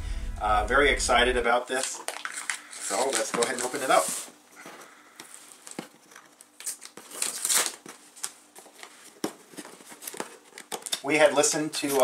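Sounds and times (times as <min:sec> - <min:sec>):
packing tape tearing: 0:01.7 - 0:04.3, 0:05.2 - 0:08.9, 0:09.5 - 0:11.1.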